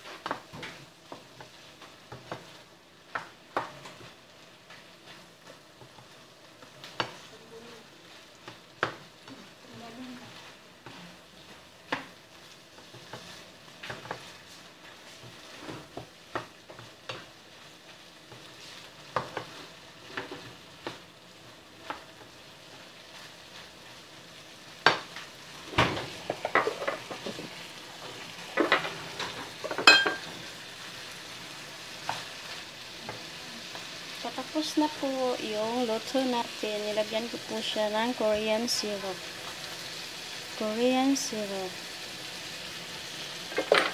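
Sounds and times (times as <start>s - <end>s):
food sizzling: 0.0s - 43.9s
spatula scraping frying pan: 10.2s - 17.3s.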